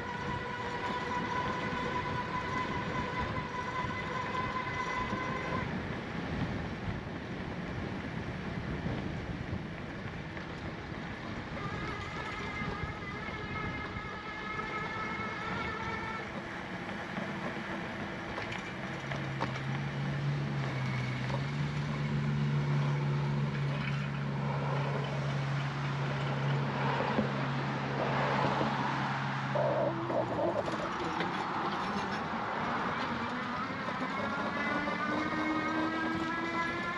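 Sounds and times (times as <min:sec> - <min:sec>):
low motor vehicle hum: 0:00.0 - 0:36.9
rushing noise from riding: 0:00.0 - 0:36.9.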